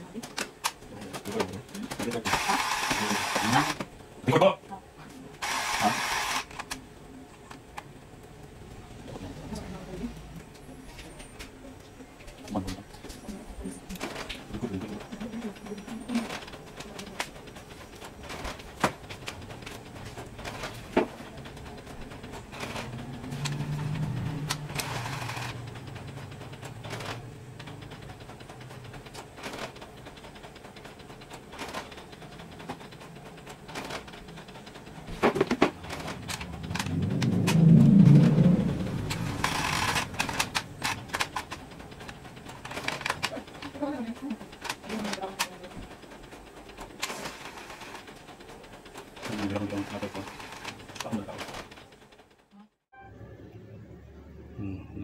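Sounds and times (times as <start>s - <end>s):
low hum: 35.8s - 42.5s.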